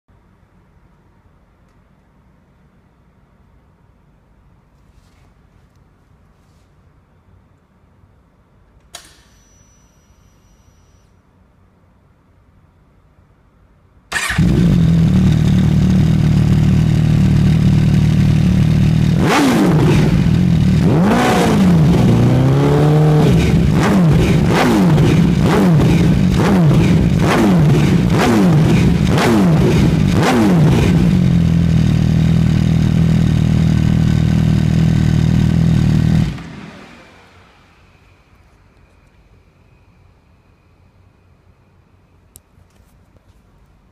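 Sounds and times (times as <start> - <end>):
motorcycle engine idling and revving: 14.2 - 38.0.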